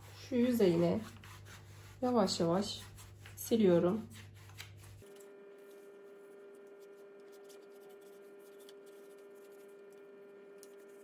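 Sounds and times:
damp cloth rubbing: 0.0 - 5.1.

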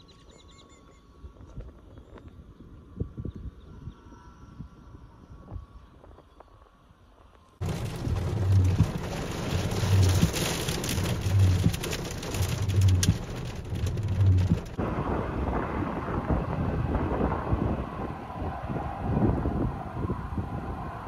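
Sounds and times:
heavy wind-driven rain: 7.6 - 21.0
wind buffeting microphone: 7.6 - 21.0.

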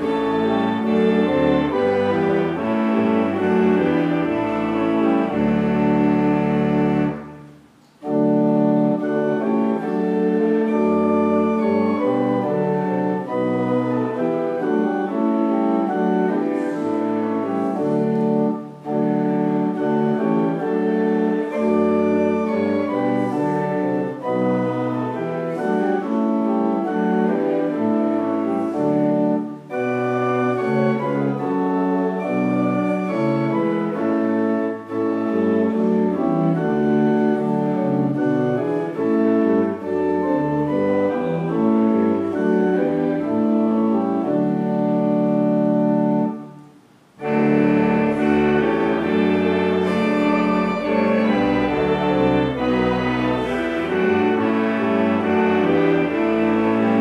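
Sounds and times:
church organ playing a hymn: 0.0 - 57.0.

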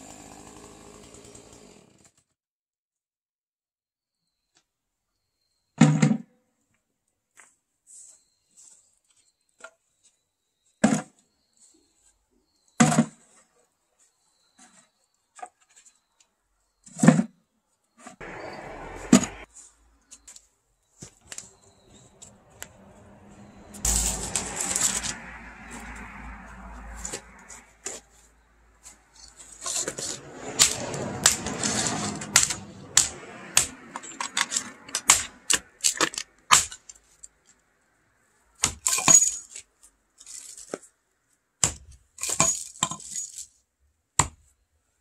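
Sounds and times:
rustling and scraping: 7.4 - 12.2, 13.0 - 18.2, 19.0 - 26.0, 26.8 - 32.8, 39.2 - 41.4.

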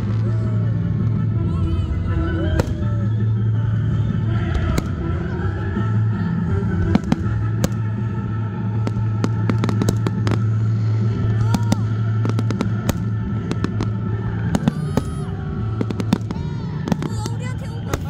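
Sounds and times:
music from loudspeakers: 0.0 - 18.0
fireworks cracking and banging: 2.5 - 3.1, 6.8 - 18.0.

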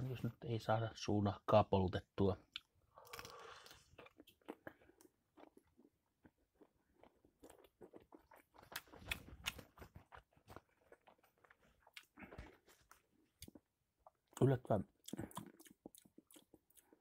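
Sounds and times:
person chewing sausage: 2.5 - 17.0
mouth clicks and smacks: 13.4 - 17.0.

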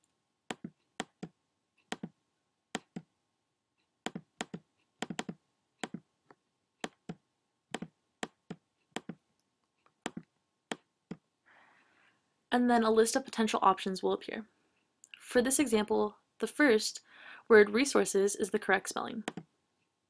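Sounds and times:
mouse button clicks: 4.1 - 6.0.

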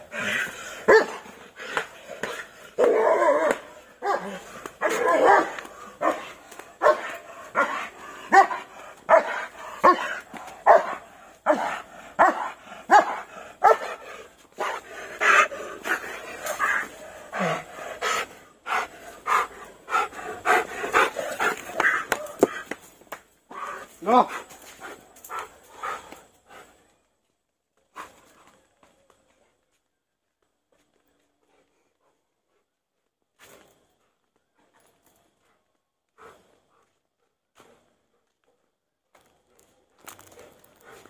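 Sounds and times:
dog barking aggressively: 0.9 - 1.3, 2.2 - 14.8.

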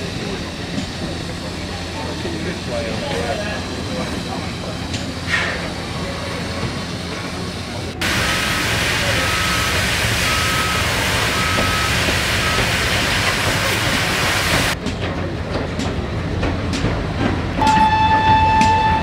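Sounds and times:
loud steam hiss: 0.0 - 14.8.

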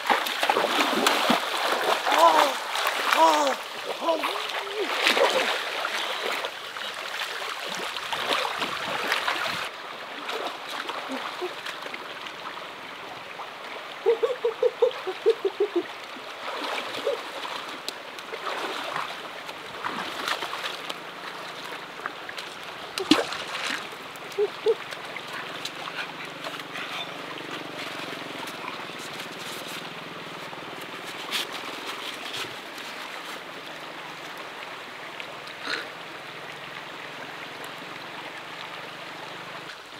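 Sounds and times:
people splashing in water: 0.0 - 12.0, 15.0 - 21.8, 22.4 - 30.0
flowing river water: 0.0 - 39.9.

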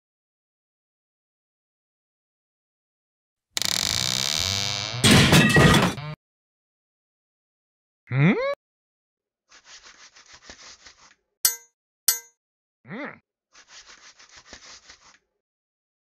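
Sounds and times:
metallic clangs: 11.5 - 12.3.

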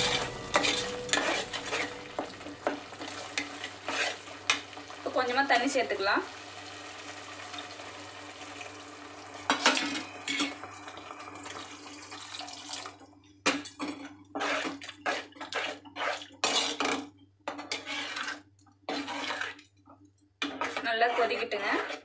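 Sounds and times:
ladle sloshing and scraping pot: 0.0 - 5.3, 13.5 - 19.7, 20.4 - 22.0
gravy simmering hiss: 0.0 - 12.3.

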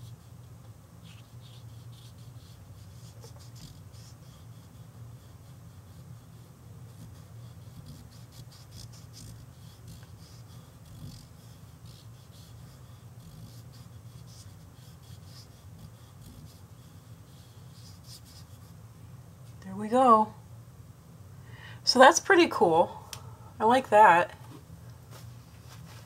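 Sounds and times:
fingertips rubbing on paper: 0.0 - 18.8
steady low hum: 0.0 - 26.0.

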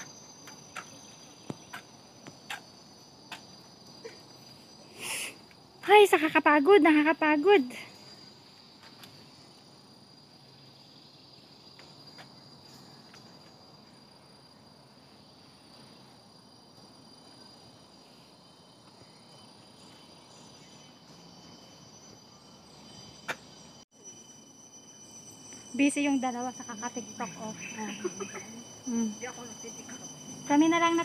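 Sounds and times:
higher insect tone: 0.0 - 31.0
insects droning: 0.0 - 31.0.

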